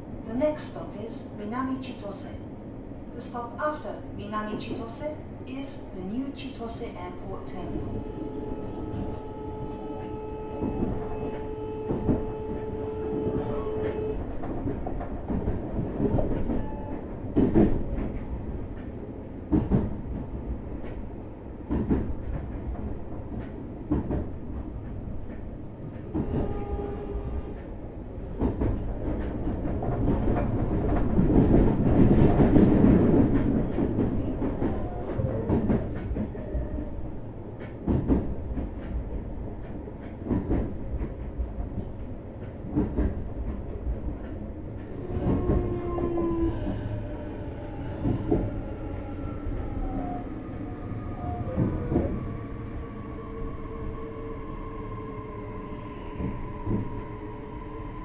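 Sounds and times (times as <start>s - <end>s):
train interior rumble: 0.0s - 58.0s.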